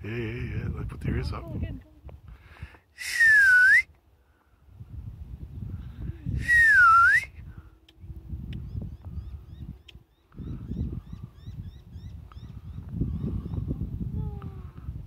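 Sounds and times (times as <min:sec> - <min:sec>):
person whistling: 0:03.0 - 0:03.9, 0:06.4 - 0:07.4
low rumble on microphone: 0:04.7 - 0:15.0.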